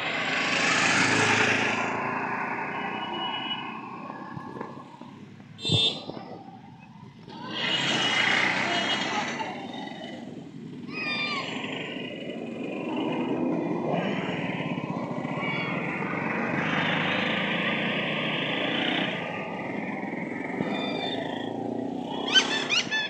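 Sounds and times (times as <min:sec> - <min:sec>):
scattered voices: 0:06.0 - 0:18.0
small engines running: 0:07.3 - 0:23.0.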